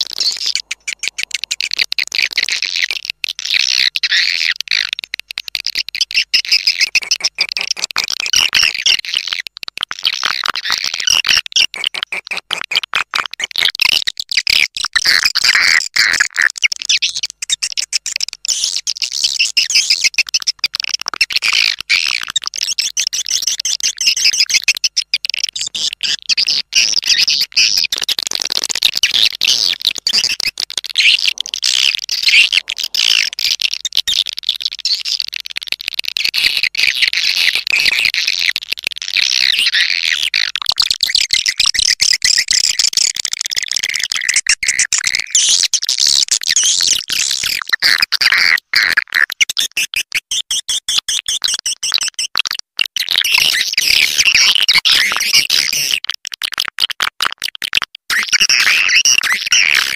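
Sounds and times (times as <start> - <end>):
swiftlet chirps and twitters: 0.0 - 4.9, 29.0 - 35.2.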